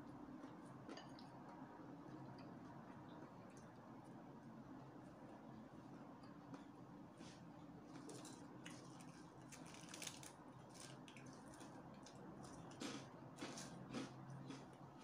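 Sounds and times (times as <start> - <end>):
low room hum: 0.0 - 15.0
person chewing noodles: 11.2 - 15.0.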